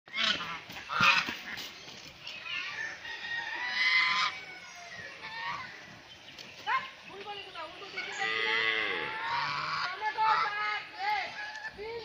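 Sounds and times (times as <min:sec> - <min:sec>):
geese honking: 0:00.1 - 0:01.7, 0:02.5 - 0:05.9, 0:07.8 - 0:11.7.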